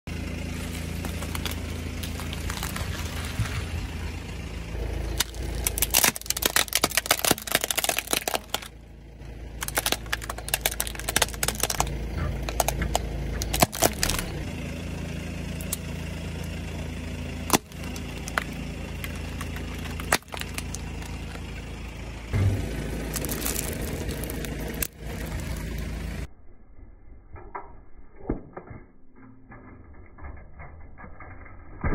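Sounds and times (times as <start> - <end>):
car engine hum: 0.0 - 26.3
tyre crushing objects: 0.5 - 3.8, 5.1 - 8.7, 9.6 - 14.4, 17.4 - 21.5, 22.4 - 25.9.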